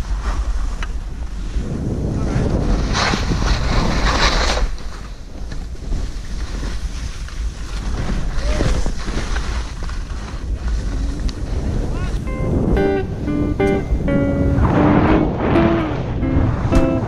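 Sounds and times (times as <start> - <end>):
skis sliding through snow: 0.0 - 12.2
wind rumble on microphone: 0.0 - 17.0.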